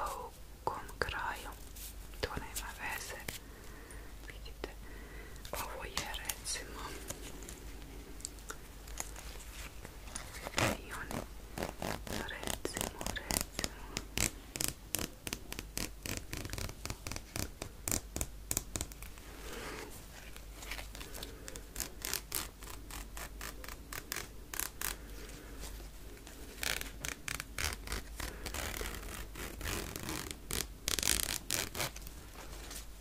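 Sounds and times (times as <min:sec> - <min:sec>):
zipper slider rasping: 0:10.1 - 0:13.4, 0:26.5 - 0:32.0
zipper teeth clicking: 0:10.1 - 0:19.2, 0:21.0 - 0:25.0, 0:26.4 - 0:32.1.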